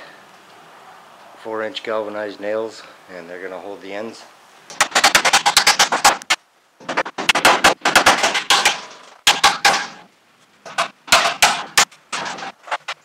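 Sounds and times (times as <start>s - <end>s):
hammer driving nails into wood: 4.7s - 10.1s, 10.7s - 12.8s.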